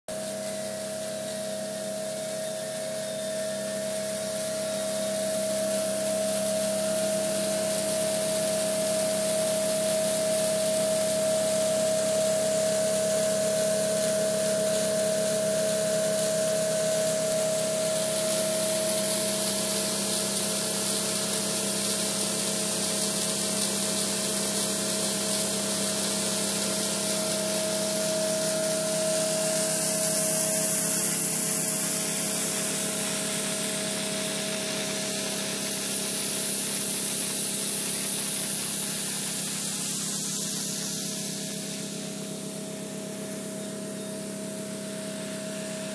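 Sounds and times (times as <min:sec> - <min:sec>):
air and water spraying hiss: 0:17.0 - 0:42.9.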